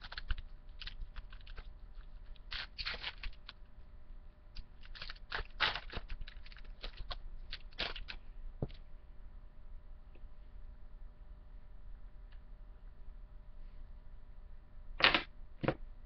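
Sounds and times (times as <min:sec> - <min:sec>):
cards rustling: 0:00.0 - 0:03.6, 0:04.7 - 0:08.2
wrappers tearing and crinkling: 0:00.0 - 0:03.6, 0:04.8 - 0:08.2.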